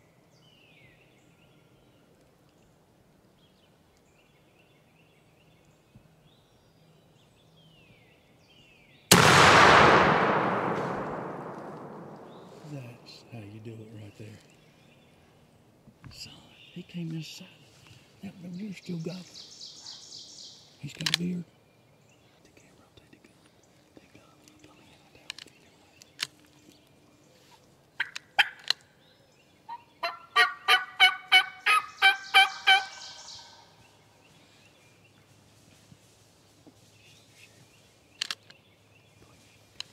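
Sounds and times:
shotgun blast with rumble: 9.1 - 13.1
turkey yelping: 28.0 - 28.6, 29.7 - 33.6
faint bird chirps: 31.8 - 35.4.

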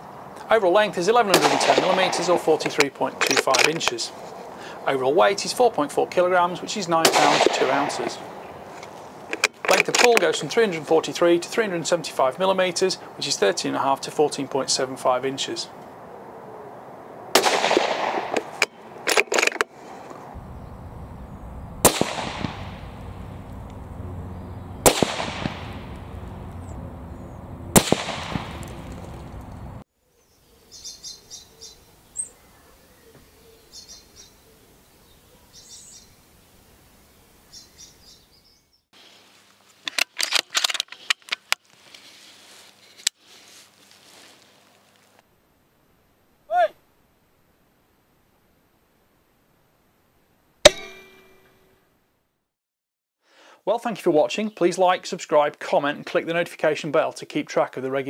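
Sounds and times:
rifle shots: 1.3 - 2.4, 7.0 - 8.2, 17.3 - 18.6, 21.8 - 23.8, 24.8 - 26.5, 27.6 - 29.4.

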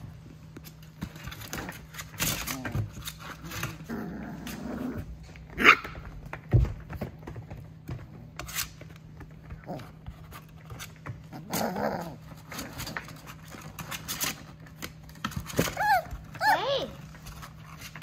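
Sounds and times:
paws scraping on plastic: 0.0 - 18.0
puppy growl: 1.3 - 5.7, 9.5 - 10.1, 11.2 - 13.4
puppy whine: 11.2 - 13.2, 15.6 - 17.0.

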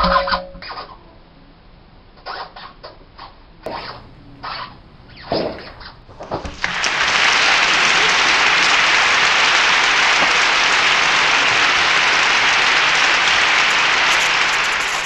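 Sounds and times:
applause: 6.5 - 15.0.

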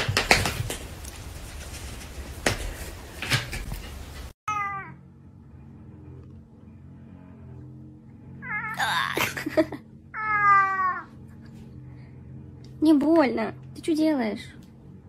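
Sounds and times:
sharp taps and knocks: 0.0 - 1.2
cat meowing: 4.5 - 5.0, 10.2 - 11.1.

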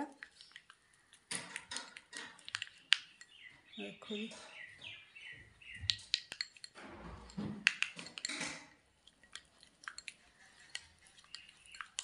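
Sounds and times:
paste squishing: 0.0 - 3.7, 5.9 - 12.0
spoon tapping glass bowl: 6.0 - 8.6.

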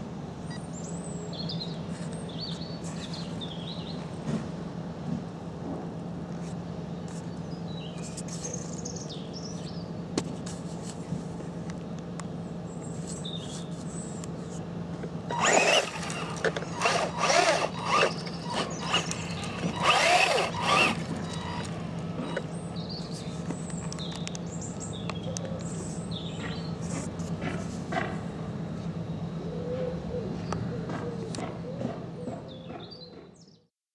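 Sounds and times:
electric motor whining: 15.3 - 22.6
gritty tyre noise: 15.3 - 23.8.

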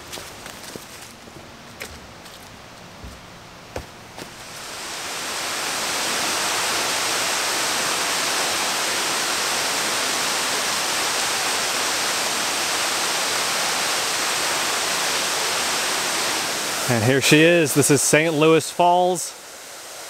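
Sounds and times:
waterfall rushing: 4.4 - 20.0.

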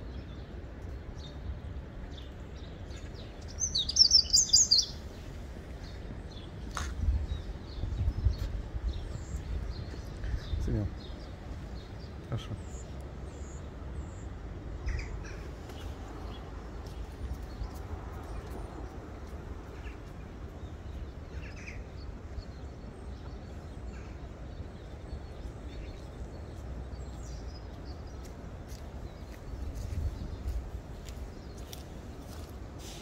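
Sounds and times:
low outdoor rumble and hiss: 0.0 - 29.6
high bird chirps: 3.4 - 5.0.

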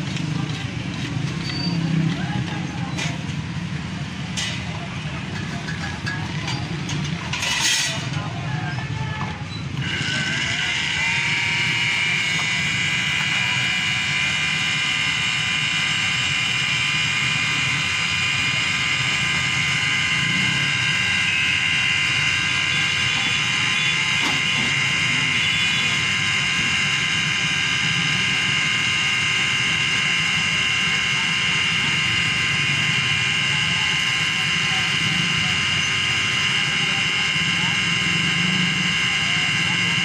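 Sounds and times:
blender motor whine: 9.8 - 40.0.

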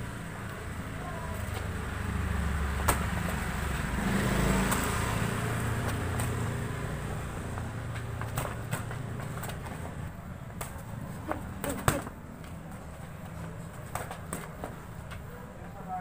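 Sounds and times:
motor vehicle rumble: 0.0 - 15.9
boxing gloves slapping: 2.8 - 3.6, 4.5 - 6.5, 7.5 - 9.9, 10.5 - 12.2.

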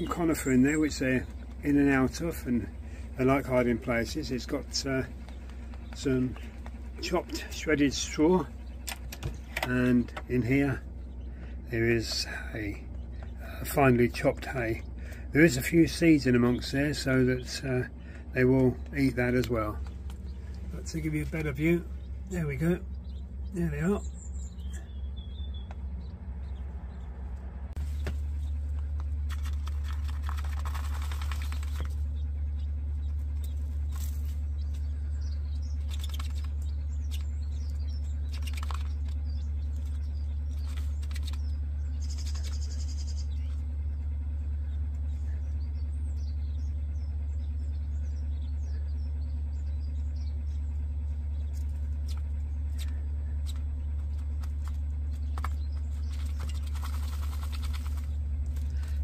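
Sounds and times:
quail chirps: 0.0 - 27.0, 27.8 - 59.0
steady low hum: 0.0 - 59.0
bird scratching in sand: 27.8 - 32.1, 52.8 - 59.0.

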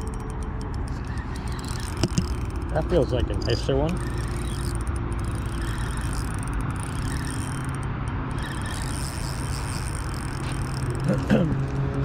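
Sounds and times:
electric motor humming: 0.0 - 12.0.

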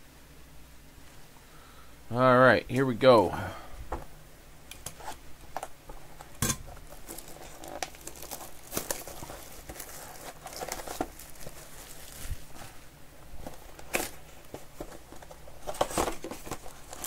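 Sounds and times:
plastic shrink wrap tearing: 6.7 - 12.8, 13.4 - 17.0.

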